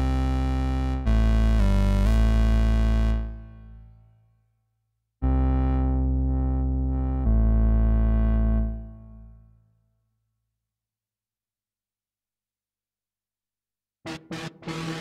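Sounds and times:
synthesizer bass note: 0:14.1 - 0:15.0.

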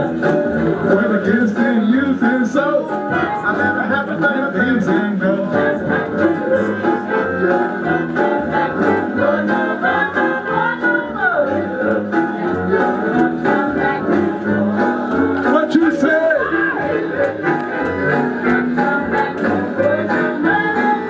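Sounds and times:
man singing into a microphone: 0:00.8 - 0:05.9.

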